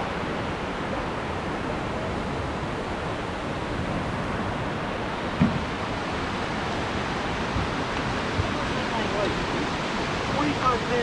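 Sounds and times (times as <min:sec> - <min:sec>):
river rapids rushing: 0:00.0 - 0:11.0
low thump: 0:05.4 - 0:05.7.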